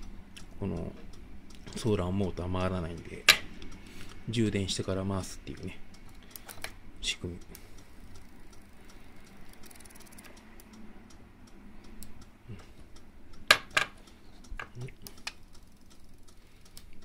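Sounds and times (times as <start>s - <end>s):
wire leads clicking and tapping: 11.8s - 17.0s.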